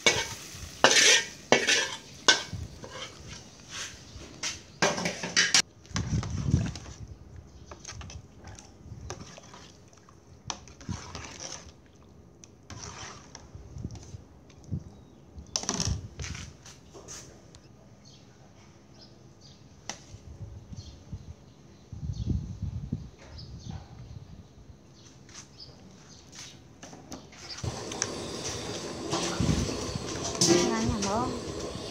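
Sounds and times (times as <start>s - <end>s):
spoon scraping a steel tray: 0.0s - 4.0s, 12.7s - 13.4s.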